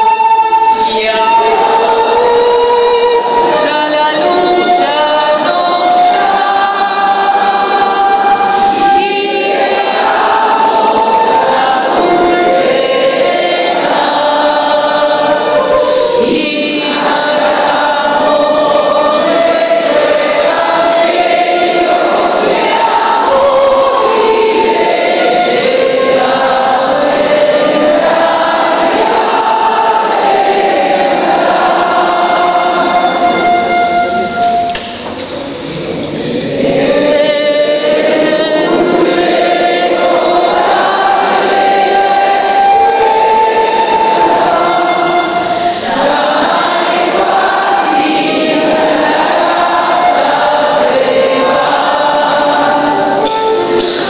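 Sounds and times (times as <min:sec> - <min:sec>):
group of voices singing: 0:00.0 - 0:54.0
transverse flute: 0:31.8 - 0:35.5.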